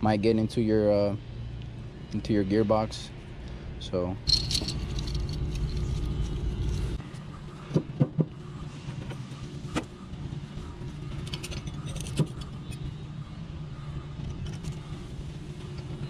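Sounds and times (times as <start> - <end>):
low mechanical hum: 0.0 - 16.0
metal knocks and clinks of tools: 4.3 - 6.4, 11.2 - 12.9.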